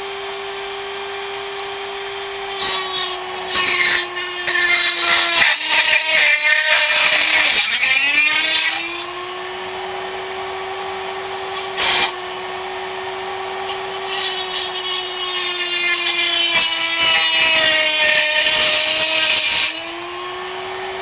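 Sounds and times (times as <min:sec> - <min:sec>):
rotary tool grinding aluminium: 0:02.5 - 0:09.2, 0:11.5 - 0:12.2, 0:13.6 - 0:20.0.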